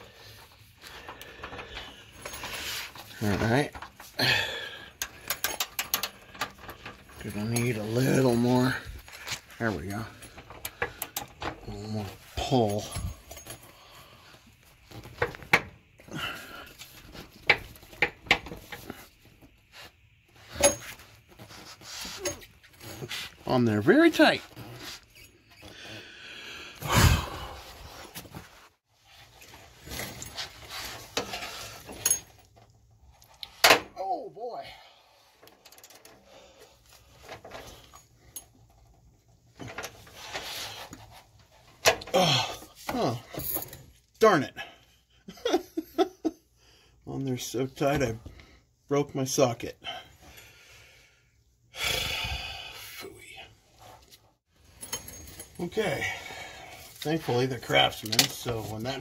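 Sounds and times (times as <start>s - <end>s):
wrench straining and rustling: 0.1s - 44.3s, 53.7s - 59.0s.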